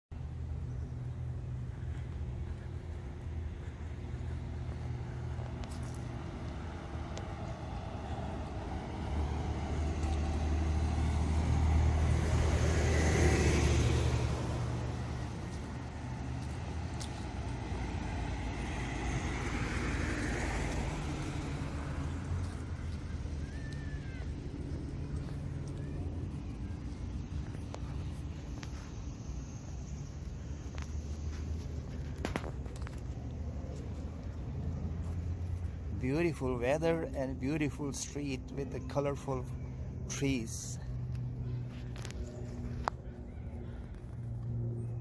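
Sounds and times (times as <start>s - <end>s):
traffic hum: 0.1s - 45.0s
car passing: 0.2s - 45.0s.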